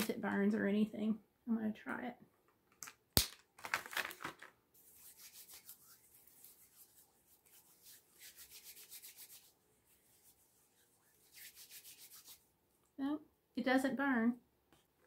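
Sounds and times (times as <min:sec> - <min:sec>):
hands rubbing together: 0:04.8 - 0:12.5.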